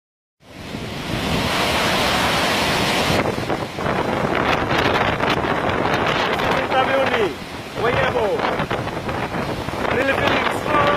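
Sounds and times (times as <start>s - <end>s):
heavy surf: 0.4s - 10.9s
wind buffeting microphone: 0.4s - 10.9s.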